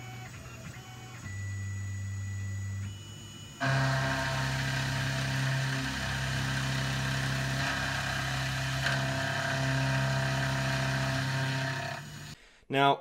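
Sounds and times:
milling machine cutting steel: 3.6 - 12.4.

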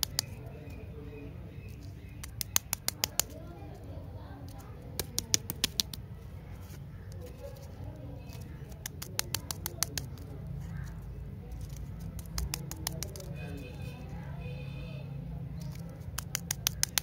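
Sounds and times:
plastic wrapper crackling: 1.7 - 6.0, 7.0 - 13.8, 15.6 - 17.0.

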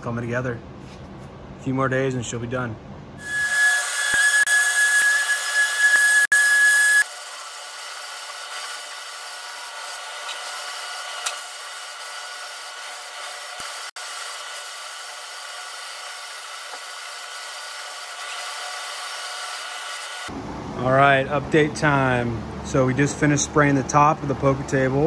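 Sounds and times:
spray gun hissing: 7.1 - 20.3.

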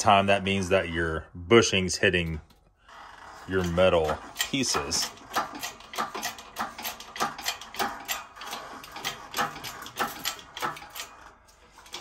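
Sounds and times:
hydraulic press clicking and creaking: 2.4 - 12.0.

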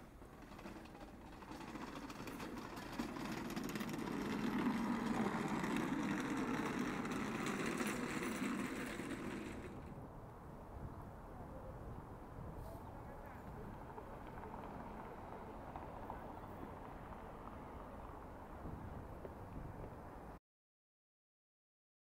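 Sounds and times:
mop bucket rolling over paving: 0.0 - 10.0, 13.6 - 19.1.

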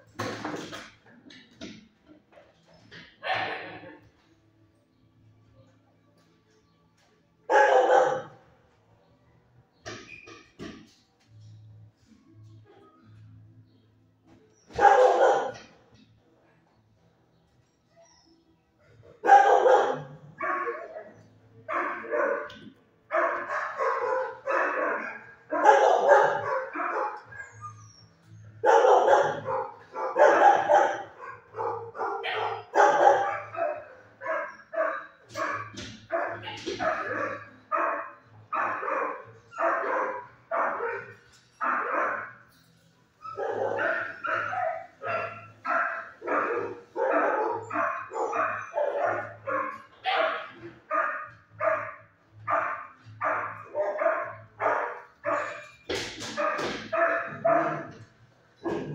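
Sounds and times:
dog barking: 7.5 - 8.4, 14.7 - 15.7, 19.2 - 27.8, 28.5 - 42.5, 43.3 - 58.9.

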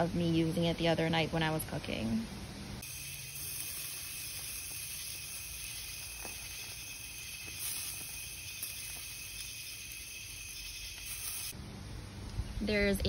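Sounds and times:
gas grill burners hissing: 2.7 - 13.0
burger patties sizzling: 2.8 - 11.6.

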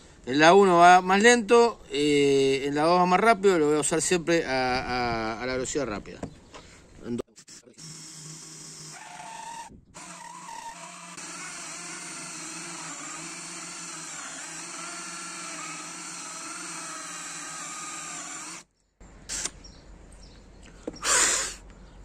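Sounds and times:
cordless drill motor whining: 7.3 - 18.7.

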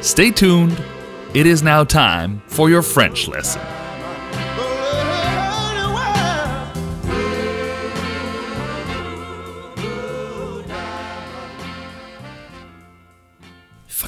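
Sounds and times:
soul song with sung vocal: 0.6 - 1.6, 2.8 - 12.6.

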